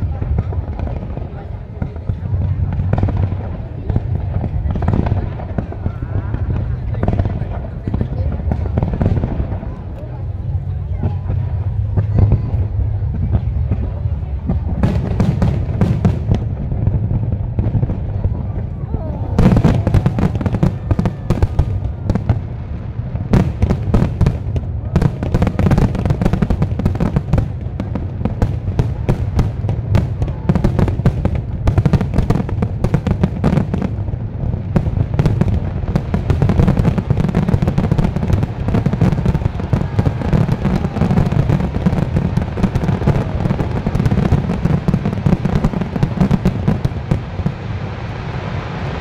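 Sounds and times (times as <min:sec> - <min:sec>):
low rumble: 0:00.0 - 0:45.0
fireworks bursting: 0:00.0 - 0:49.0
fireworks crackling: 0:00.0 - 0:49.0.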